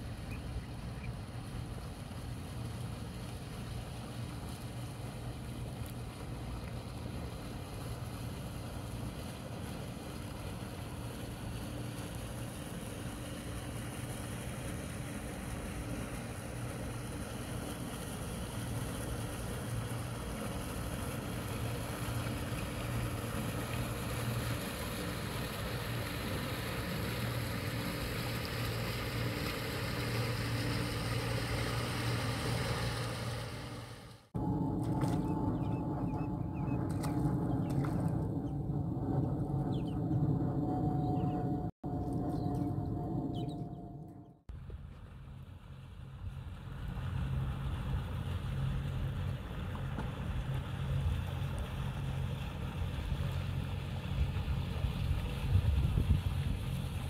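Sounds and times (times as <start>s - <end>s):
outboard motor running: 1.4s - 42.8s.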